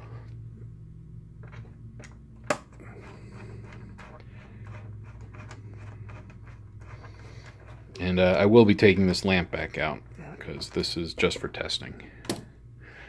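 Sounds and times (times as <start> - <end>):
steady low hum: 0.0 - 13.0
screwdriver ticks and scrapes: 2.8 - 8.1.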